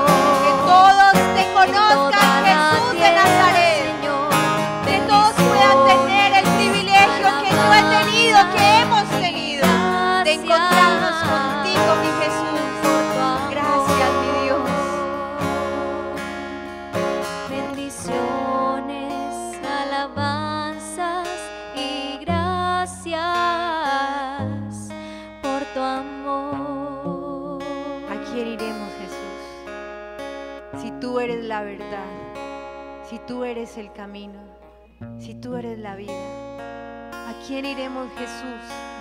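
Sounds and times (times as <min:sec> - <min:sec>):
person singing: 0:00.0 - 0:29.5
strummed acoustic guitar: 0:00.0 - 0:39.0.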